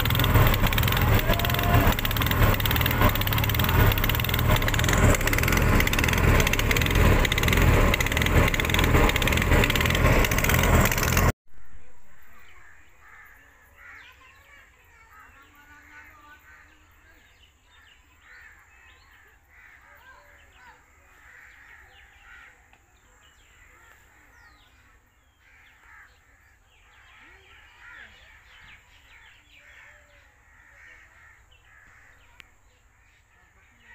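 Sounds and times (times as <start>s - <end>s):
small boat engine running: 0.0s - 11.4s
wind: 0.0s - 33.9s.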